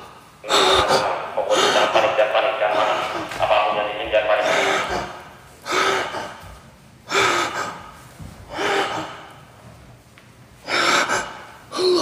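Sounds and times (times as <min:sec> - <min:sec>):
man breathing hard: 0:00.0 - 0:02.0, 0:04.4 - 0:09.8, 0:10.6 - 0:12.0.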